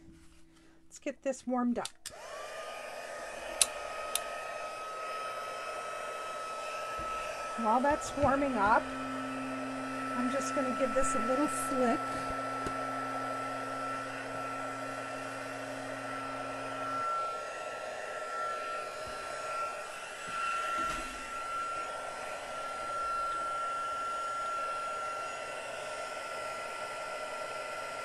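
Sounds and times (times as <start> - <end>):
heat gun blowing with high whine: 2.0 - 28.0.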